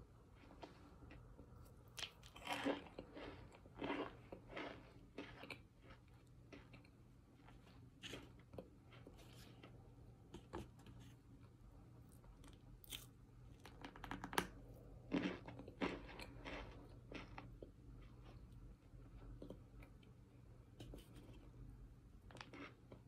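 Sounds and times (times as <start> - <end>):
crunching and chewing: 0.4 - 9.8, 12.1 - 20.0, 22.2 - 23.0.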